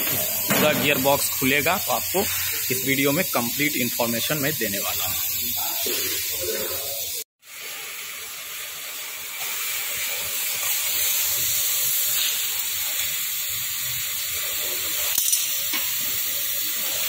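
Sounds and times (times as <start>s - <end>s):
steady high hiss: 0.0s - 7.3s.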